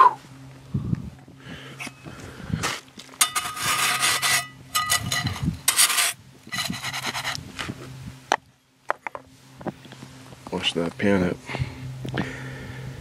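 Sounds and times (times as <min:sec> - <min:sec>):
metal pan scraping snow: 0:03.2 - 0:07.4.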